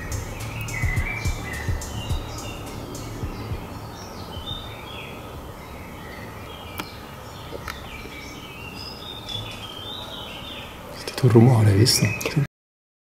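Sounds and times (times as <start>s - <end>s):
birds chirping: 0.0s - 12.4s.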